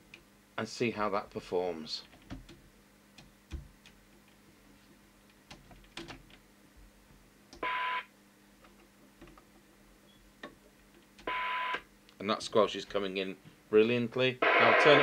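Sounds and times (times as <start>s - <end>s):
radio squelch tone with hiss: 14.4s - 15.0s.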